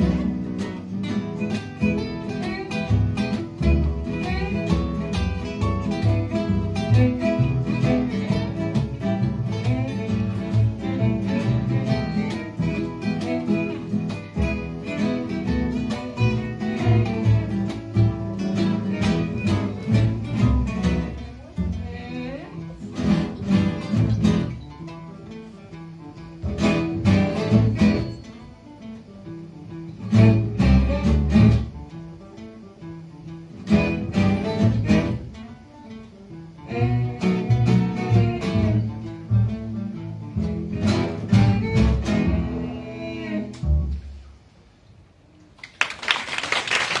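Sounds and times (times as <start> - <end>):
acoustic string ensemble playing: 0.0 - 45.0
audience applause: 45.6 - 47.0.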